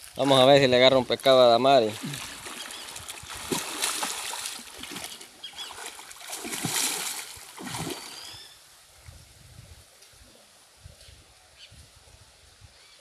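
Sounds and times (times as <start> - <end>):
water splashing and churning: 0.0 - 8.5.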